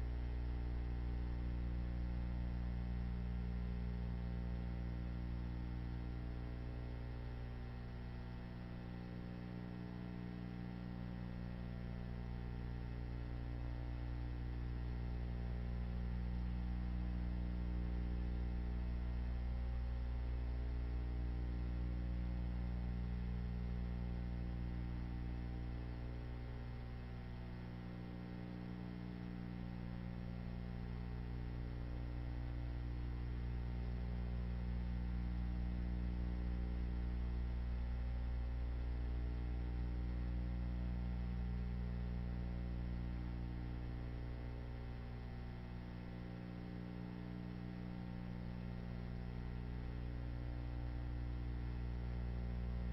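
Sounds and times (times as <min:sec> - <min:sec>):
electrical mains hum: 0:00.0 - 0:52.9.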